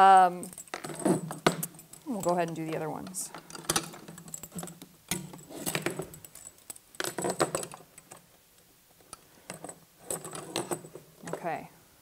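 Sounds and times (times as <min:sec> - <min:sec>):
metal springs clinking: 0:00.0 - 0:07.8.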